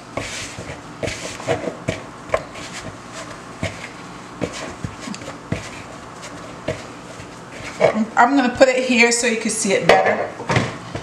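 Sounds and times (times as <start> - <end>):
hands kneading dough in bowl: 0.1 - 8.1.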